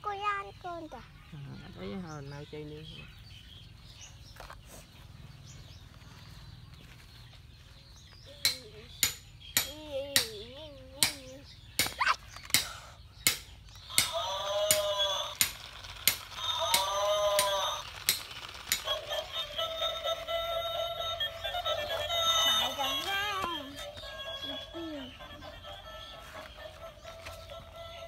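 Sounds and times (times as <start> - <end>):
toy playing electronic tune: 13.9 - 28.0.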